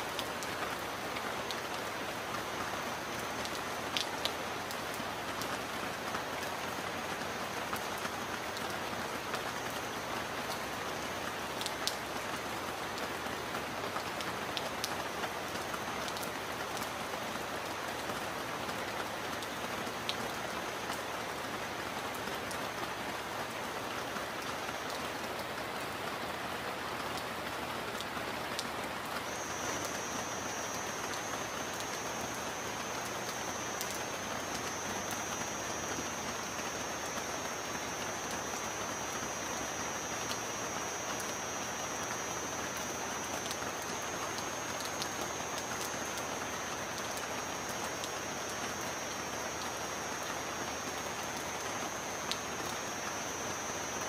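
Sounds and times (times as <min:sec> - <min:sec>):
steady rain falling: 0:00.0 - 0:54.0
thin high steady tone: 0:29.2 - 0:54.0.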